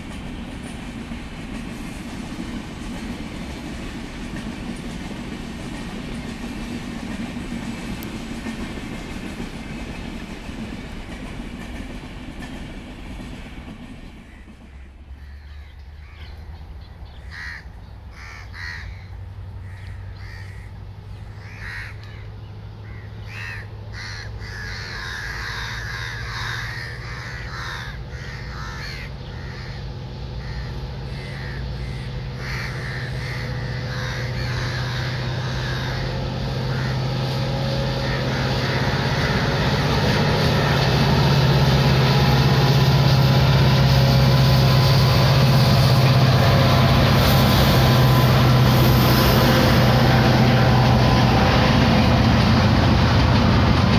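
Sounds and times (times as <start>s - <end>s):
diesel locomotive drone: 0.0s - 53.9s
train coaches running on track: 0.0s - 53.9s
crows cawing: 14.2s - 16.5s, 17.1s - 42.2s.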